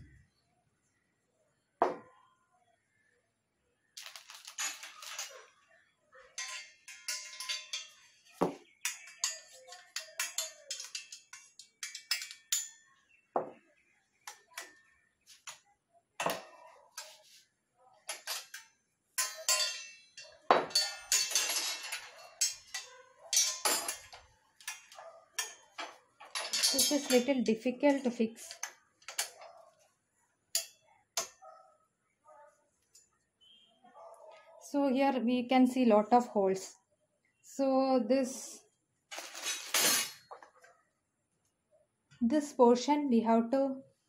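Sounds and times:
metal rods clinking and rattling: 4.0 - 5.6, 6.3 - 12.9, 18.1 - 29.7, 30.5 - 31.4, 39.1 - 40.5.

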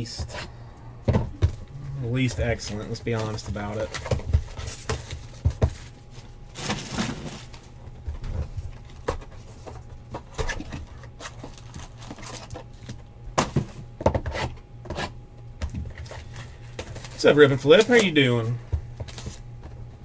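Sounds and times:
foil packs crinkling: 2.1 - 7.8, 10.3 - 13.0, 15.9 - 19.4.

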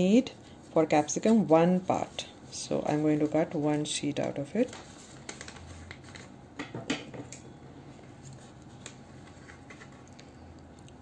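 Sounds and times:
paper handling: 2.9 - 6.3.

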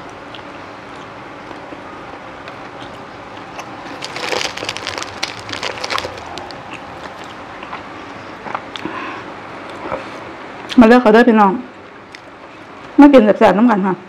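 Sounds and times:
crunching raw vegetables: 0.0 - 8.9.

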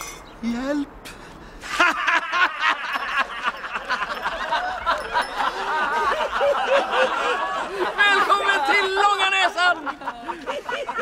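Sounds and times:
group of people laughing: 1.6 - 11.0
people calling out: 4.4 - 11.0.

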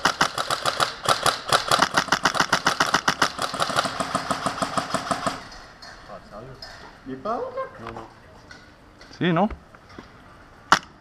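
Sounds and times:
airsoft rifle automatic fire: 0.0 - 5.5.

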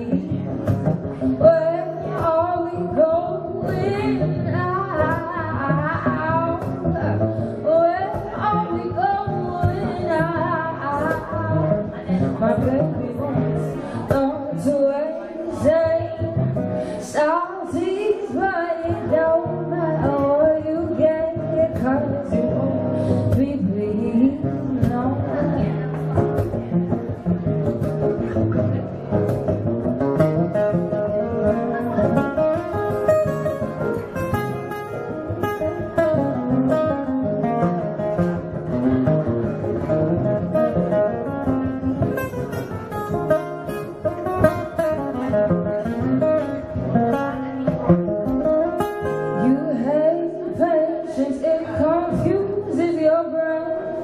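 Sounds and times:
woman singing: 0.0 - 0.4, 1.2 - 6.9, 7.6 - 25.8, 49.3 - 54.0
acoustic guitars: 0.0 - 54.0.

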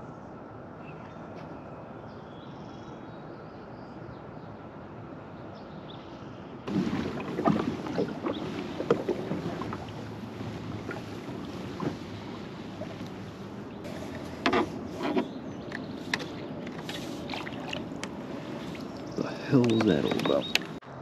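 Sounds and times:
water splashing against kayak hull: 6.7 - 20.8
faint high bird chirps: 18.7 - 20.8.

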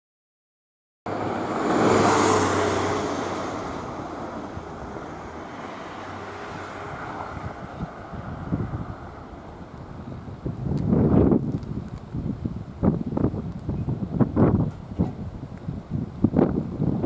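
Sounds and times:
road vehicle passing by: 1.1 - 11.3
wind gusting on microphone: 1.1 - 17.0.

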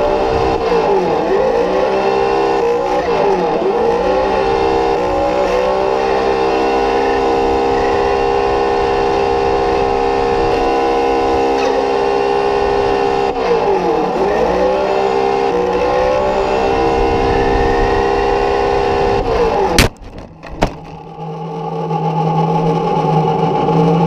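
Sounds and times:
rc car drivetrain whine: 0.0 - 24.0
rc car crashing bang: 19.8 - 21.0.

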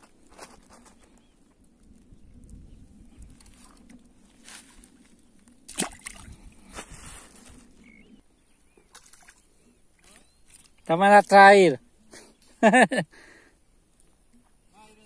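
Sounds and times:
water sloshing: 3.4 - 6.6, 8.7 - 10.9
fish splashing into water: 5.6 - 6.4, 8.9 - 9.4.

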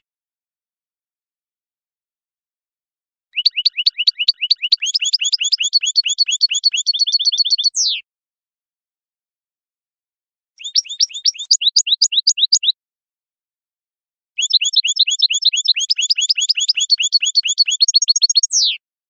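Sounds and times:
goldfinch singing: 3.4 - 8.0, 10.6 - 12.8, 14.4 - 18.8.

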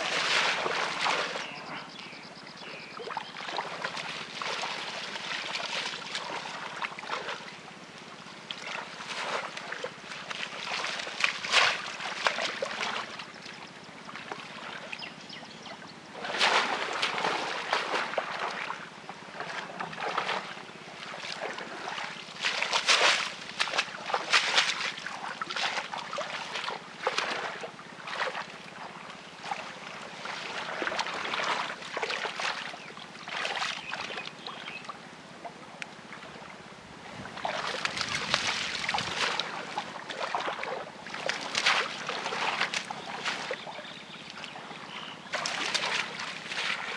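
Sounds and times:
water plants rustling: 0.0 - 1.7, 3.4 - 7.5, 8.5 - 13.2, 16.2 - 28.5, 37.2 - 46.9
splashing shallow water: 0.0 - 1.9, 2.6 - 15.1, 16.2 - 46.9.

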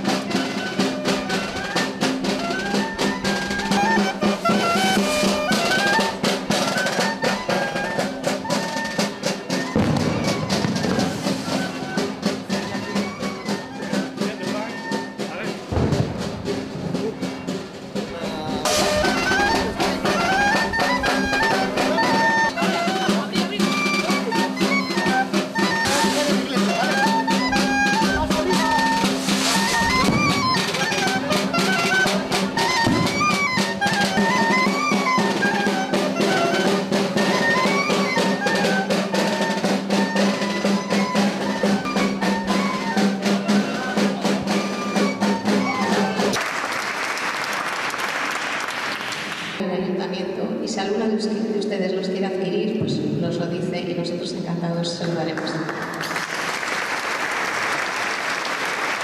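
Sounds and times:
wind instrument playing lively melody: 0.0 - 47.2
drum beating time: 0.0 - 59.0.

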